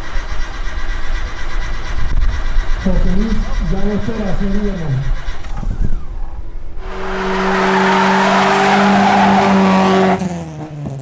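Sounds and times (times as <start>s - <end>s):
car engine revving high: 2.5s - 11.0s
tyres squealing: 2.8s - 10.3s.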